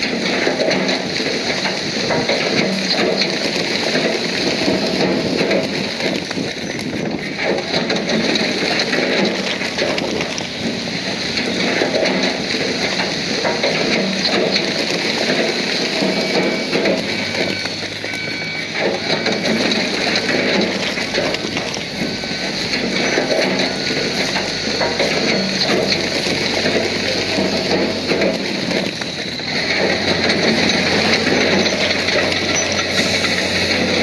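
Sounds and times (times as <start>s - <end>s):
bulldozer engine running: 0.0s - 34.0s
gritty crackle of tracks and stone: 0.0s - 34.0s
short high squeaks: 30.6s - 33.4s.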